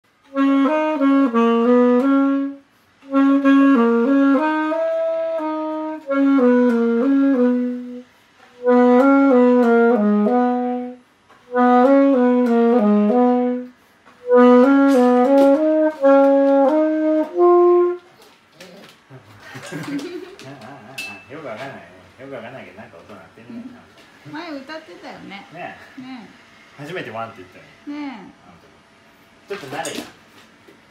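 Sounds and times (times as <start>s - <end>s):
solo saxophone slow melody: 0.1s - 18.8s.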